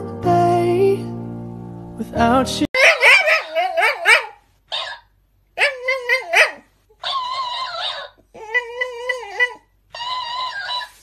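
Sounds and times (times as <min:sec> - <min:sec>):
dog making high-pitched calls: 0:02.8 - 0:11.0.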